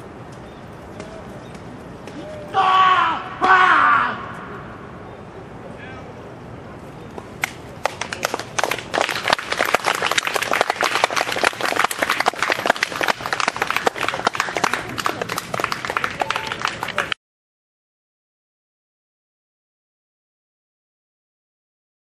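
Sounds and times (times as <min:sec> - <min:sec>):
spectators clapping: 0:07.4 - 0:17.2.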